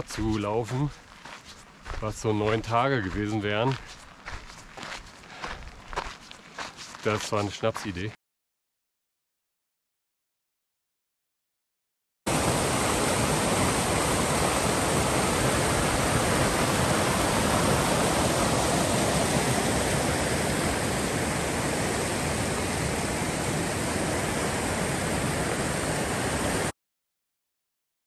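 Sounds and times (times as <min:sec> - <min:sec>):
flowing water rushing: 0:12.3 - 0:26.7.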